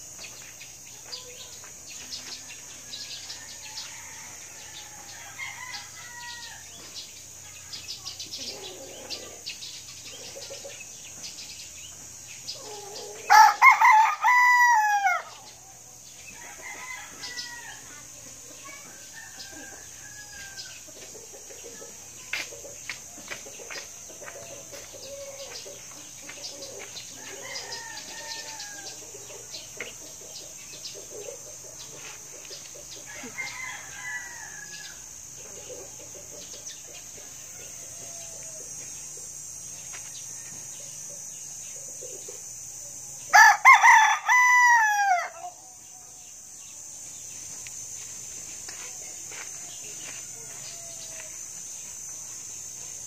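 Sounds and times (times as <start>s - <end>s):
steady high hiss: 0.0s - 53.0s
rooster crowing: 2.8s - 6.8s, 12.6s - 15.5s, 16.3s - 18.0s, 18.9s - 20.9s, 27.2s - 29.2s, 33.0s - 35.1s, 37.2s - 38.8s, 43.3s - 45.7s, 50.1s - 51.4s
chicken clucking: 8.2s - 11.3s.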